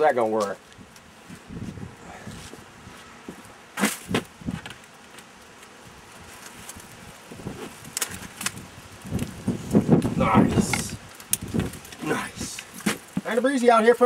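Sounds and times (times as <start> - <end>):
wind rumble on microphone: 0.7 - 3.0, 4.1 - 4.7, 5.9 - 12.6.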